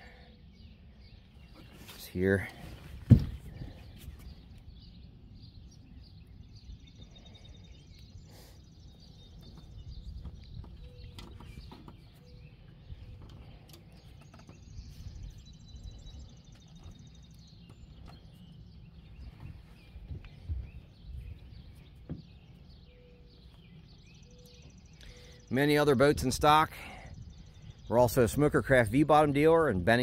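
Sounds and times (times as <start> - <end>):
faint bird chirps: 0.0 - 28.3.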